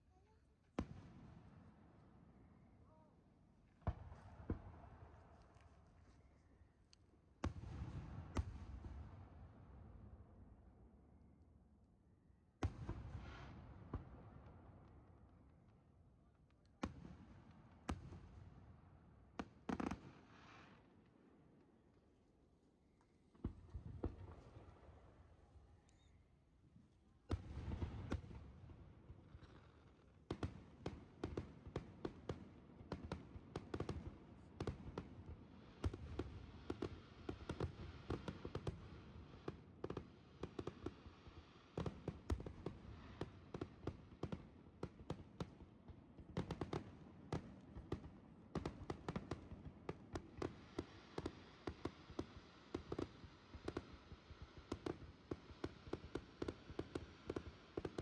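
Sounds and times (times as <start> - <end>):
fireworks bursting and crackling: 19.4 - 21.0, 27.3 - 45.6, 46.4 - 58.0.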